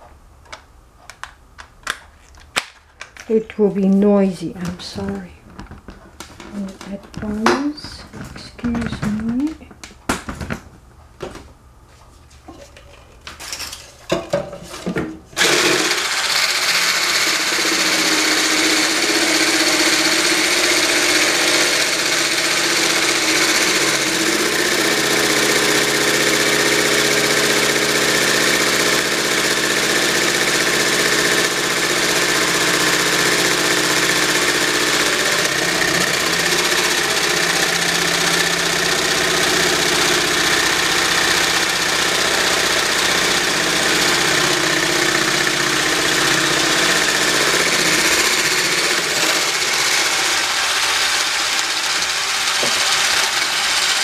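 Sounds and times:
stick blender motor whine: 0:15.4 - 0:54.0.

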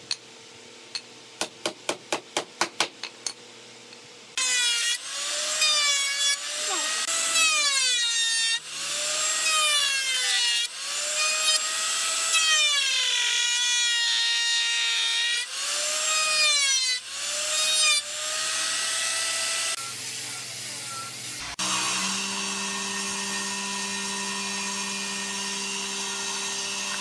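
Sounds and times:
woodworking machine motor whine: 0:04.4 - 0:12.3, 0:17.1 - 0:27.0.

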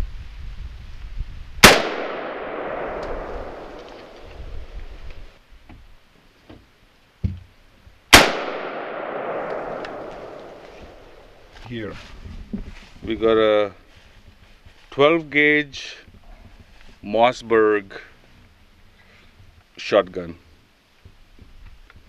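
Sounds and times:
rifle shots with echo: 0:01.6 - 0:04.8, 0:08.1 - 0:11.4.

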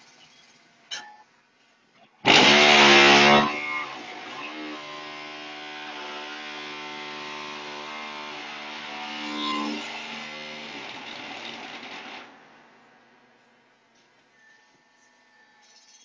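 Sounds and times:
block-making machine buzzing: 0:02.3 - 0:12.3
machine humming: 0:02.3 - 0:13.5.

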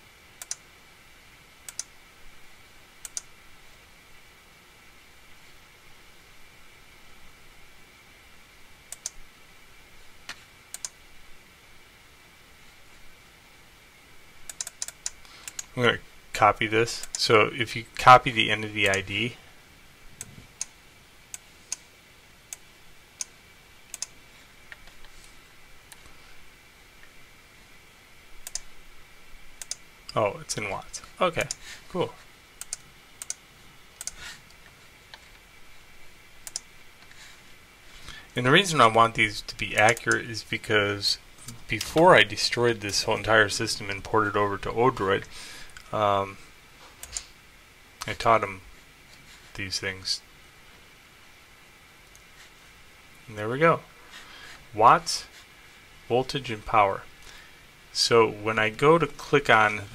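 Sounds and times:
computer mouse clicks: 0:00.4 - 0:00.6, 0:01.7 - 0:01.9, 0:03.0 - 0:03.3, 0:08.9 - 0:09.2, 0:10.3 - 0:11.0, 0:14.5 - 0:15.7, 0:17.0 - 0:17.2, 0:23.9 - 0:25.2, 0:28.4 - 0:28.7, 0:29.6 - 0:29.8, 0:32.6 - 0:33.4, 0:34.0 - 0:35.4, 0:36.4 - 0:37.2, 0:39.8 - 0:40.2, 0:47.0 - 0:47.4.

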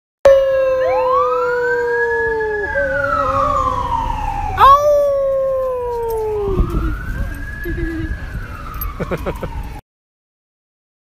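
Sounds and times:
people howling: 0:00.3 - 0:08.1.

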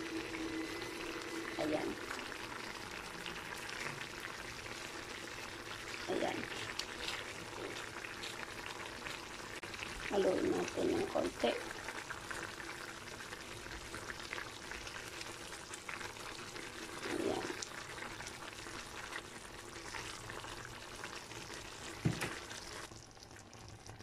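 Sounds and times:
stew bubbling and crackling: 0:00.0 - 0:24.0
spatula stirring noodles: 0:03.0 - 0:10.1
knock: 0:22.0 - 0:22.3.

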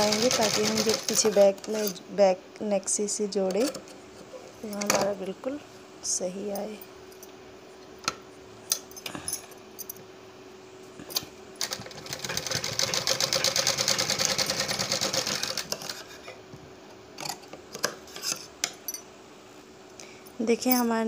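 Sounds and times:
sewing machine stitching: 0:00.0 - 0:01.8, 0:11.6 - 0:16.0.

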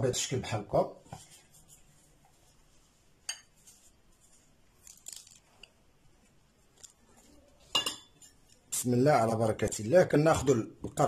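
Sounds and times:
salt crunching and rustling: 0:03.5 - 0:05.7
sharp crackles: 0:04.8 - 0:05.7.

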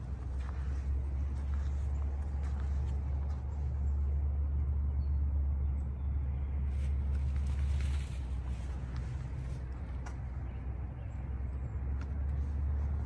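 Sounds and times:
steady low rumble: 0:00.0 - 0:13.0
light rustling: 0:06.7 - 0:10.5.

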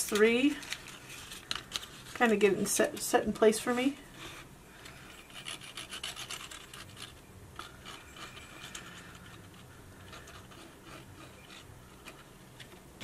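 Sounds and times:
cardstock rubbing and ticking: 0:04.4 - 0:12.8.

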